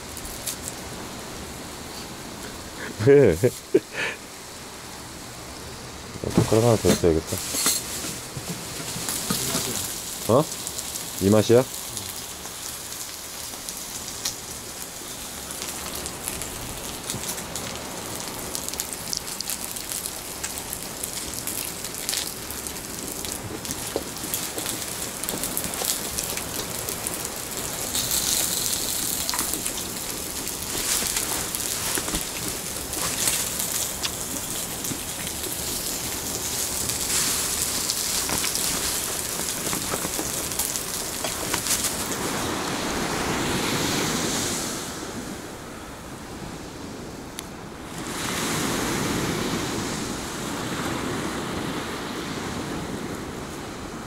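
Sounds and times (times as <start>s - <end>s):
meat sizzling on a griddle: 6.4s - 42.3s.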